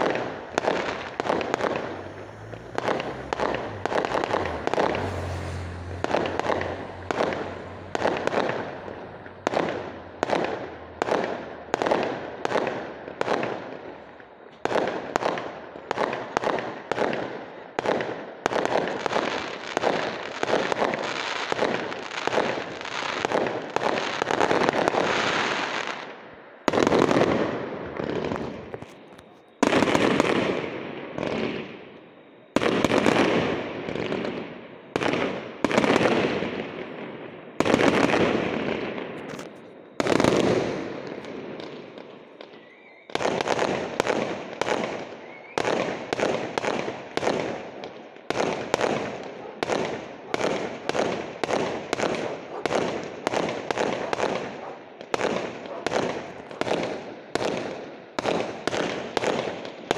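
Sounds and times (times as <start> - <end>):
firework shell bursts: 0.0 - 10.6.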